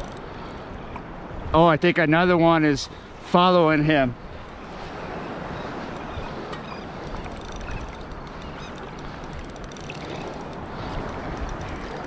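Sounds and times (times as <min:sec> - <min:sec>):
surf water washing: 0:00.0 - 0:12.0
faint ticks: 0:05.9 - 0:12.0.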